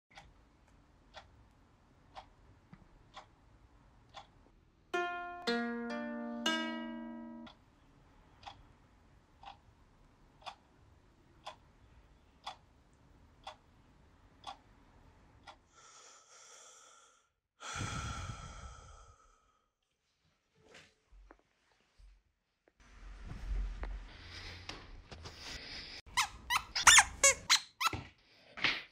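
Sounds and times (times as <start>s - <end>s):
clock ticking: 0.1s - 4.4s, 5.0s - 7.6s, 8.4s - 8.7s, 9.3s - 9.7s, 10.4s - 10.7s, 11.4s - 11.8s, 12.4s - 12.7s, 13.4s - 13.6s, 14.4s - 14.8s, 15.4s - 15.6s
ukulele chord strummed: 5.0s - 7.5s
person sighing: 17.6s - 19.4s.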